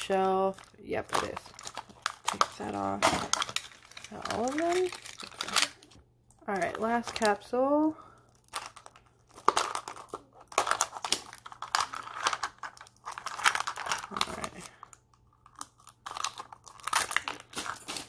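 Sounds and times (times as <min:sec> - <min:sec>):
wrapping crinkling: 0:00.0 - 0:18.0.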